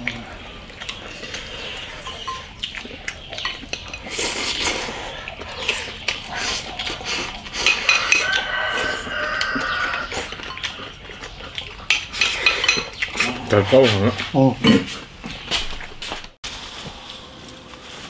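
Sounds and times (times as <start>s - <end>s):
chopsticks clinking on bowls: 0.9s - 4.8s, 5.6s - 14.9s.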